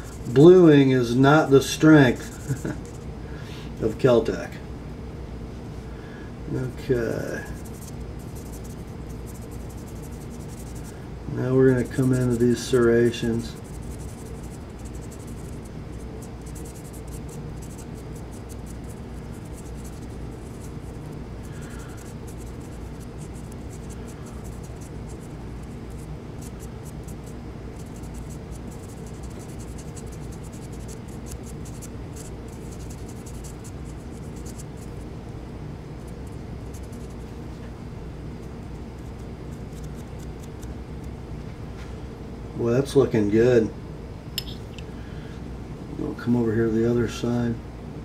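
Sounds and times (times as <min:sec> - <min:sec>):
steady low hum: 0:00.0 - 0:48.0
pen tip scratching metal: 0:13.4 - 0:21.1, 0:21.7 - 0:34.8, 0:39.0 - 0:40.7.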